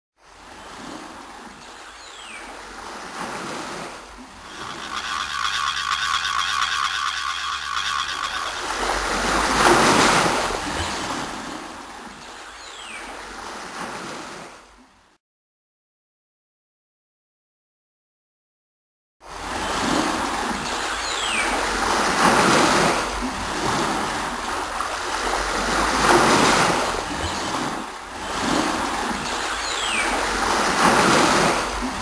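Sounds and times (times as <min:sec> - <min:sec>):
waves washing in: 0:00.2 - 0:14.9, 0:19.2 - 0:32.0
rhythmic whirring: 0:04.4 - 0:10.9.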